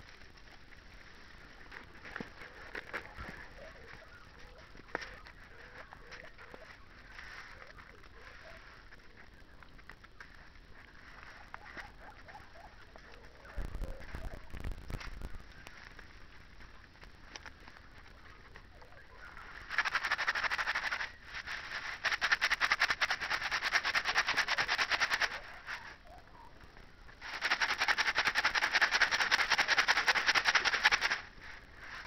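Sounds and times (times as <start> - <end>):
paper folding and creasing: 1.6 - 9.1.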